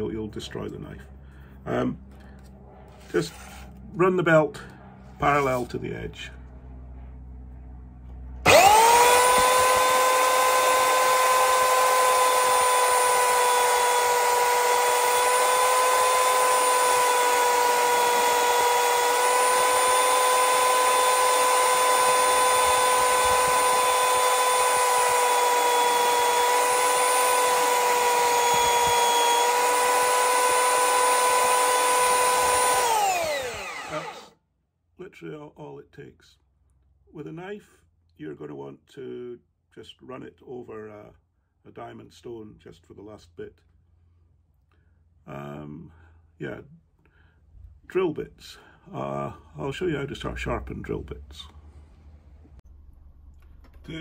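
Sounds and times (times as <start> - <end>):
belt sander motor whine: 8.4 - 34.3.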